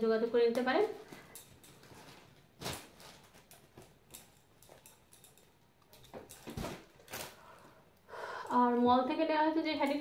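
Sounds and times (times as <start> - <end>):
cloth and plastic rustling: 0.1 - 7.7.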